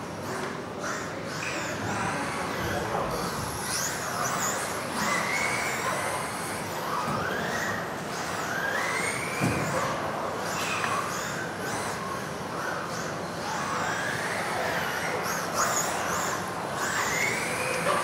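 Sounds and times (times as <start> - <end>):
electric motors whining: 0.0 - 18.0.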